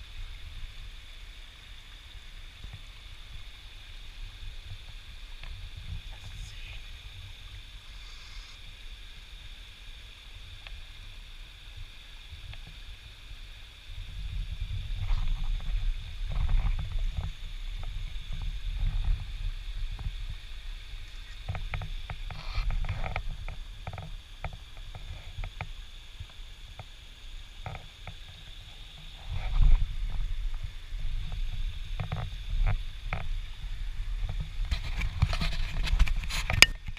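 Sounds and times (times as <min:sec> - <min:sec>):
faint high hiss: 0:00.0 - 0:36.9
low microphone rumble: 0:28.6 - 0:36.9.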